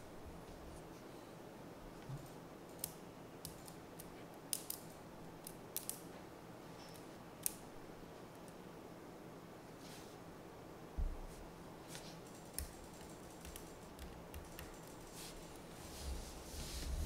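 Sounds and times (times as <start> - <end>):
magnetic balls clicking: 2.0 - 6.0, 12.3 - 15.7.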